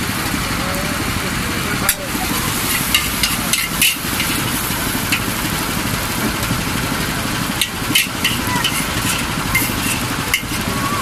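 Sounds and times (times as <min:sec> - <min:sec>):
metal utensils clanking on wok: 0:01.9 - 0:05.4, 0:07.6 - 0:10.7.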